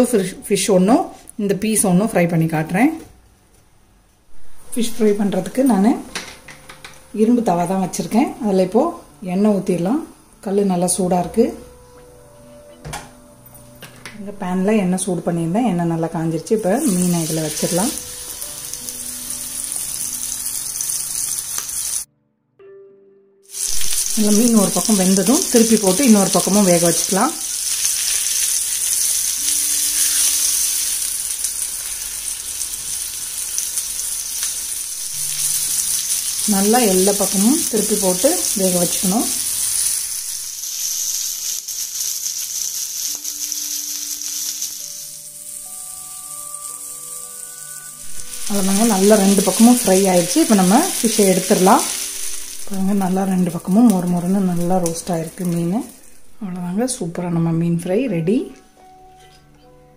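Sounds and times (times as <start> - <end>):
soft background music: 0.0 - 59.9
fish sizzling in hot oil: 16.6 - 22.1, 23.5 - 56.2.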